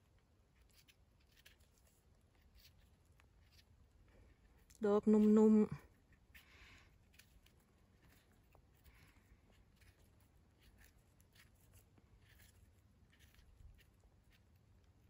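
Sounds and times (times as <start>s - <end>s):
knife scraping mushroom stem: 0.5s - 3.9s.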